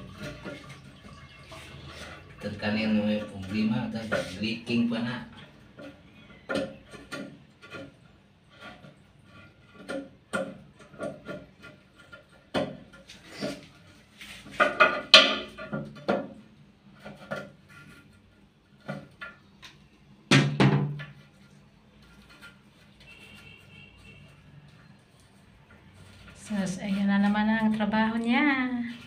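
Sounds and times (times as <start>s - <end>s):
plastic parts clattering on ceramic cistern: 0.0s - 19.8s.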